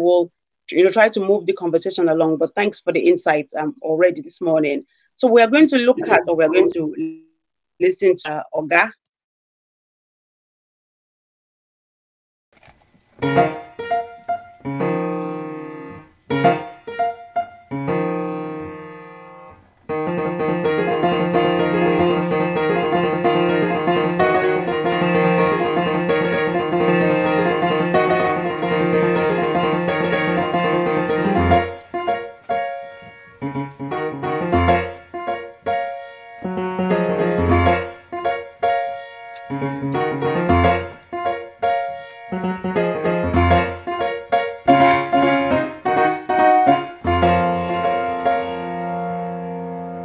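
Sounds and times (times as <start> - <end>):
grand piano playing: 5.9 - 7.0, 13.2 - 50.0.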